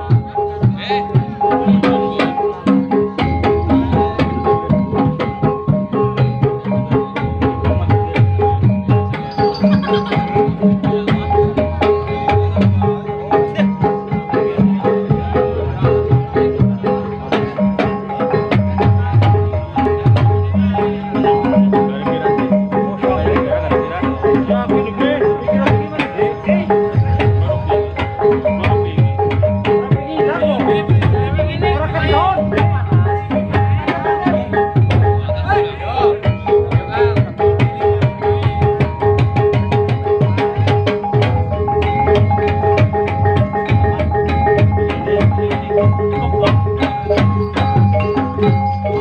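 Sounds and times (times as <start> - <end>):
ringing bronze gongs melody: 8.3 - 12.8
ringing gong-chime pots: 8.6 - 12.8, 38.4 - 49.0.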